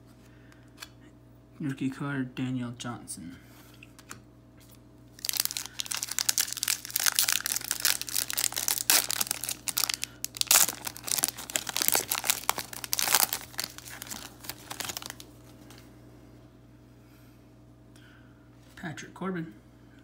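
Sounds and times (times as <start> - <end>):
wrapper tearing and crinkling: 5.2 - 15.5.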